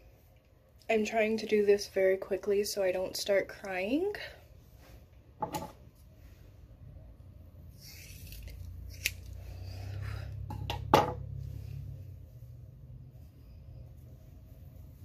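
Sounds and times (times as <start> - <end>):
scissors snipping hair: 8.1 - 9.4.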